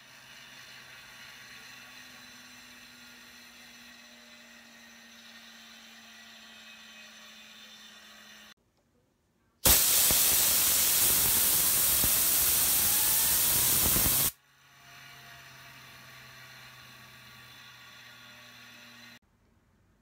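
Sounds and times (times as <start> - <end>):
compressed air blast hissing: 9.6 - 14.4
fidget spinner whine: 10.0 - 19.2.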